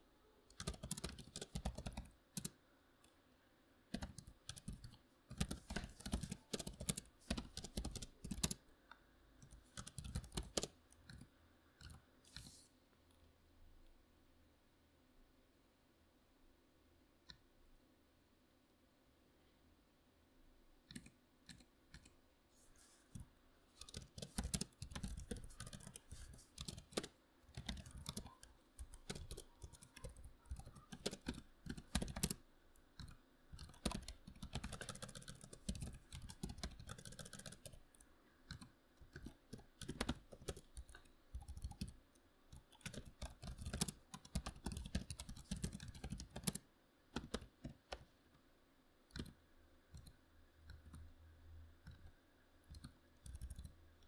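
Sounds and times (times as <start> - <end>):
typing on computer keyboard: 0.5 - 2.6, 3.9 - 8.6, 9.4 - 12.5, 23.8 - 46.6, 47.2 - 48.0, 49.1 - 51.0, 51.9 - 53.8.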